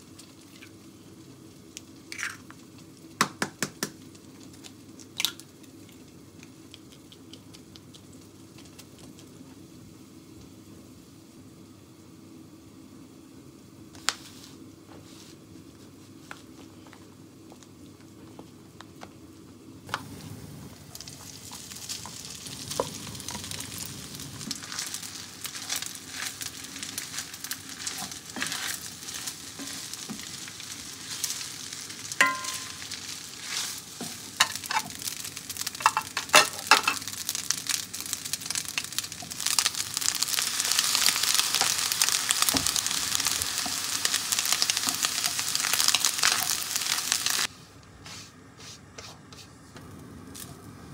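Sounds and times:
rice sizzling in a pan: 0.0s - 48.8s, 49.7s - 50.9s
wooden spatula scraping: 24.4s - 35.0s.

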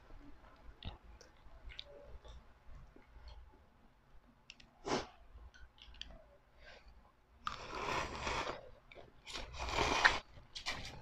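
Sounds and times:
slurping noodles: 7.4s - 10.3s.

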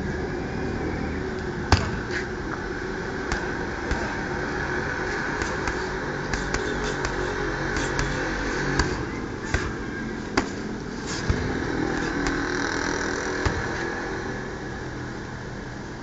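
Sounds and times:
engine running: 0.0s - 16.0s
punches smacking heavy bag: 3.3s - 4.4s, 5.4s - 12.6s.

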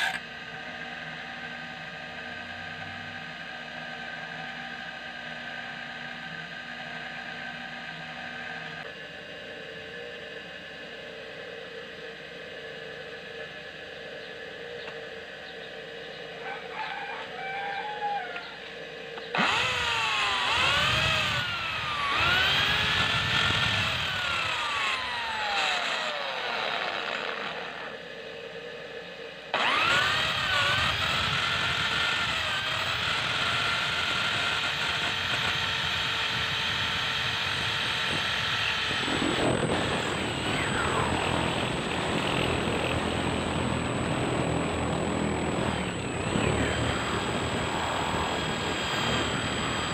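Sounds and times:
electric drill boring into steel: 0.0s - 8.9s, 19.3s - 28.0s, 29.5s - 49.9s.

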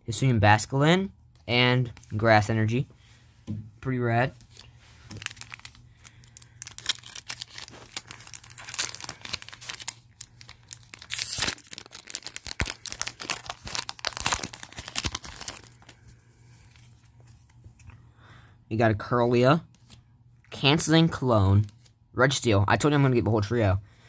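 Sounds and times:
foil pack crackling and tearing: 5.0s - 16.0s.

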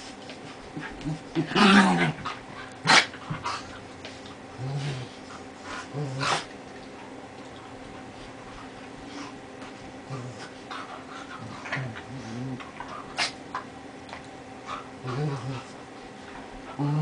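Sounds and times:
dogs growling in play: 0.3s - 17.0s
dog snarling: 15.0s - 15.7s.

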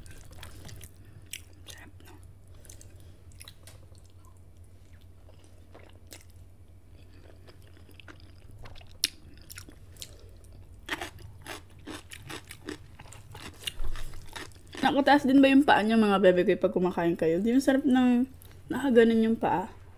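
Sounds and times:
chewing noodles: 0.0s - 14.8s
low steady hum: 0.0s - 19.9s.

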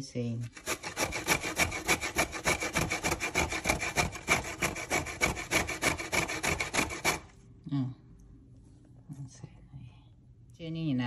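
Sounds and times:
grating on metal grater: 0.4s - 7.3s.

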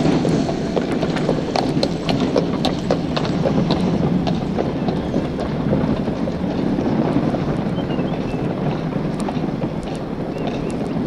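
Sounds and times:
low rumble of wheels: 0.0s - 11.0s.

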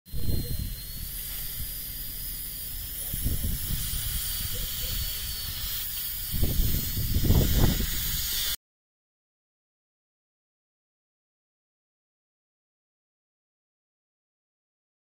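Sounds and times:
wind on microphone: 0.1s - 8.6s.

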